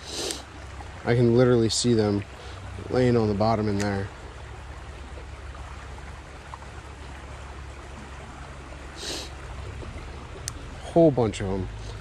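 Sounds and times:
brief hiss: 0.0 - 0.4
creek water running: 0.0 - 12.0.

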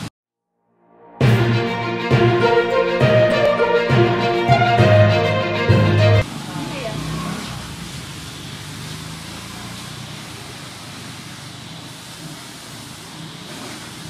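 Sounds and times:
even hiss: 7.2 - 14.0.

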